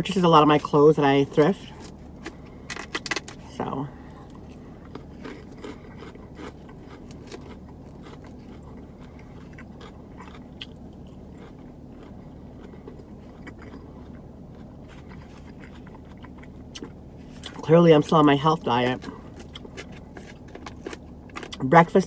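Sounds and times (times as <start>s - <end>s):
steady low hum: 0.0s - 22.0s
chewing: 4.2s - 17.6s, 19.0s - 21.6s.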